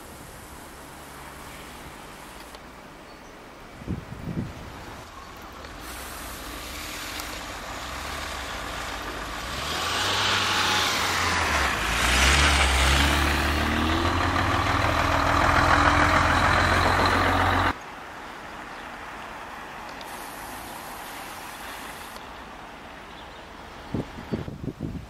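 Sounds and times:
tyres hissing on snow: 0:00.0 - 0:02.5, 0:04.8 - 0:13.1, 0:20.0 - 0:22.2
truck diesel engine passing: 0:05.1 - 0:17.8.

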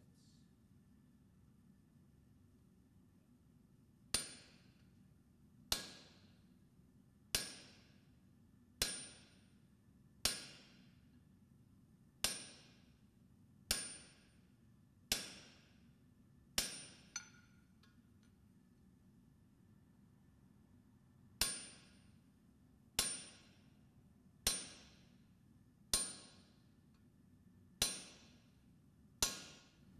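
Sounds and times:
hammer striking steel on anvil: 0:04.1 - 0:04.8, 0:05.7 - 0:06.4, 0:07.3 - 0:08.0, 0:08.8 - 0:09.5, 0:10.2 - 0:11.0, 0:12.2 - 0:13.0, 0:13.7 - 0:14.4, 0:15.1 - 0:15.8, 0:16.6 - 0:18.1, 0:21.4 - 0:22.1, 0:23.0 - 0:23.7, 0:24.4 - 0:25.2, 0:25.9 - 0:26.6, 0:27.8 - 0:28.5, 0:29.2 - 0:29.9.

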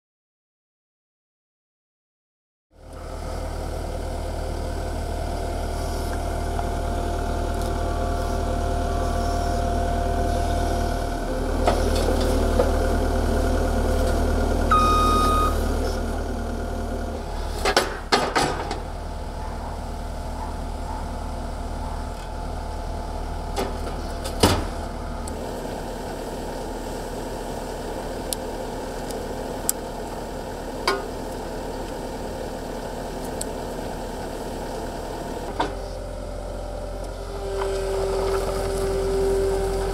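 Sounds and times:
diesel engine running: 0:02.7 - 0:39.9
short beep: 0:14.7 - 0:15.7.

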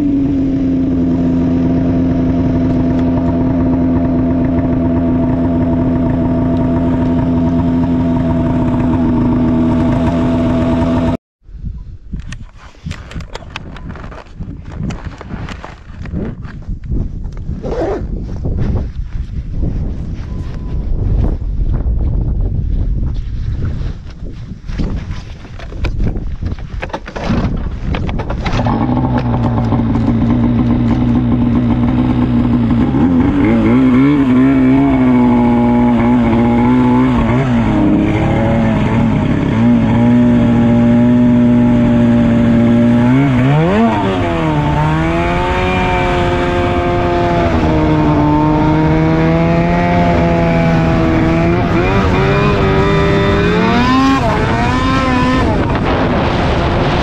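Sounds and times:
snowmobile two-stroke engine running: 0:00.0 - 0:11.2, 0:28.2 - 0:57.0.

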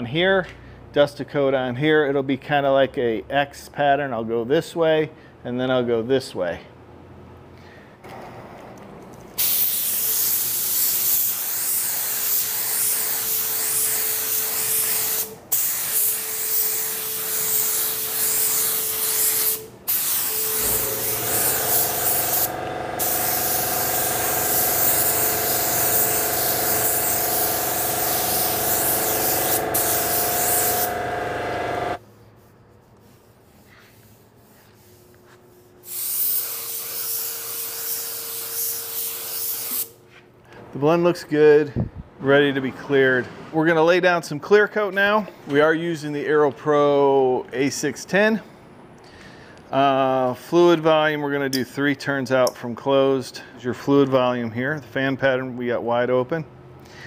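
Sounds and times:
spray gun hissing: 0:09.4 - 0:32.0, 0:35.8 - 0:39.9.

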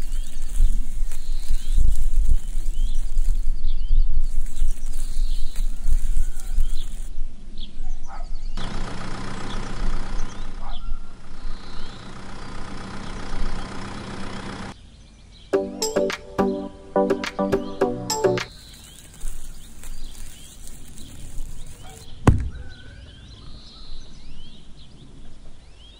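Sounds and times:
toy motor humming: 0:00.0 - 0:03.5, 0:04.3 - 0:07.1, 0:18.5 - 0:22.1
birds chirping: 0:15.2 - 0:25.2.

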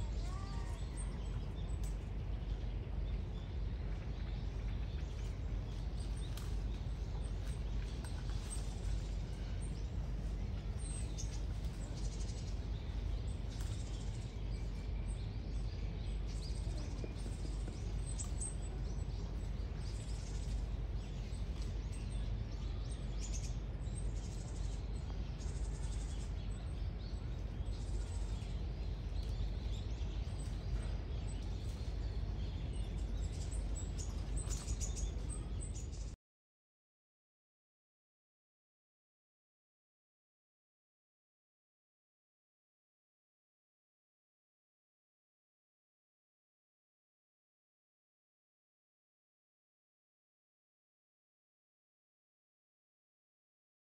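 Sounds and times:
low ambient rumble: 0:00.0 - 0:36.2
small birds chirping: 0:00.0 - 0:36.2.

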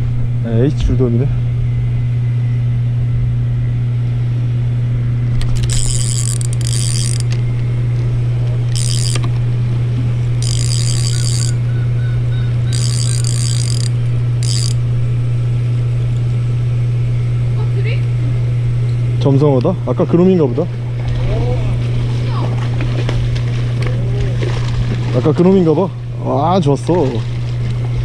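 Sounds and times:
steady low hum: 0:00.0 - 0:28.0
reel drag ratcheting clicks: 0:05.4 - 0:07.5, 0:08.7 - 0:09.4, 0:10.4 - 0:11.6, 0:12.7 - 0:14.8.

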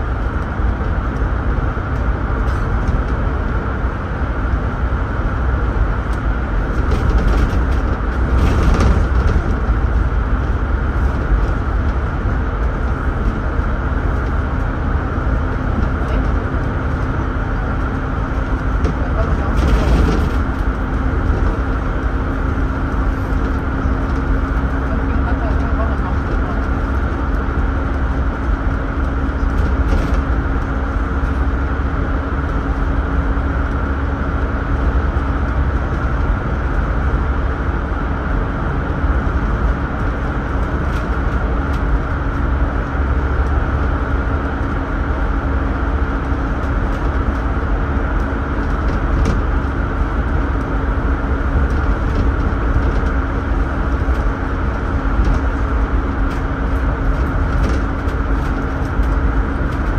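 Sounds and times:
bus engine drone: 0:00.0 - 0:59.9
constant hum: 0:00.0 - 0:59.9
road rumble: 0:00.0 - 0:59.9
faint rattles: 0:18.3 - 0:27.1.

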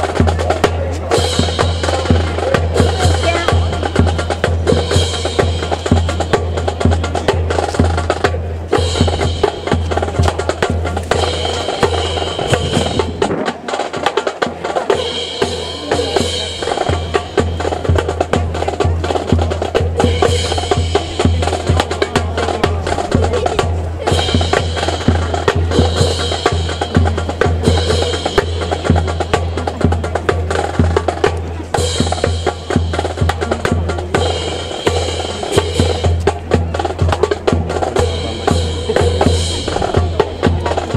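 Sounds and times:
fast bass drum beat: 0:00.0 - 0:40.9.

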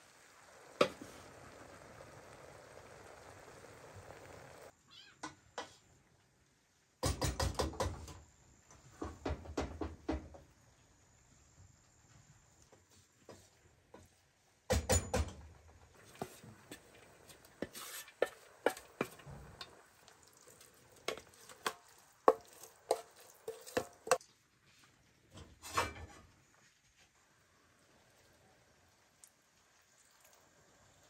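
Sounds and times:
utensils knocking and scraping pots: 0:14.7 - 0:24.2, 0:25.3 - 0:26.4
rustling: 0:15.9 - 0:27.4.

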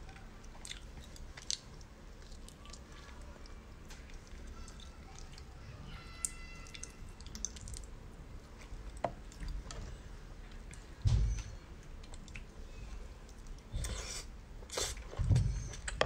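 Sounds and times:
soft squishy meat sounds: 0:00.0 - 0:16.0.

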